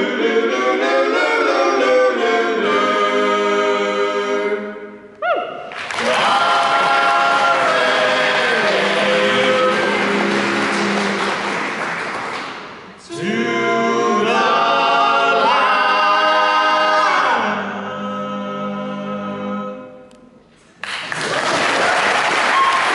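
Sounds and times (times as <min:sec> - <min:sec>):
men singing a cappella chords: 0:00.0 - 0:04.8, 0:06.0 - 0:11.2, 0:13.0 - 0:20.1.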